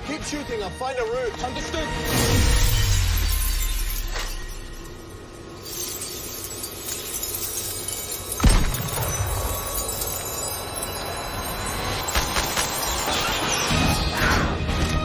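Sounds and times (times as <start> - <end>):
glass shattering: 2.1 - 14.2
glass shards tinkling: 2.4 - 14.2.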